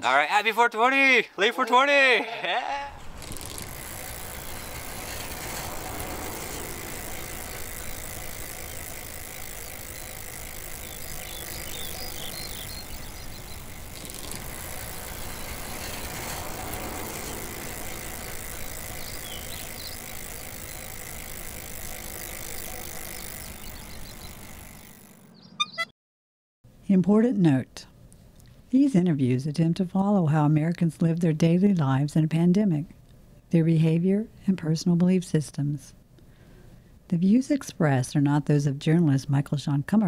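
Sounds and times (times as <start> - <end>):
wind: 0.0 - 25.8
passing traffic: 2.4 - 25.4.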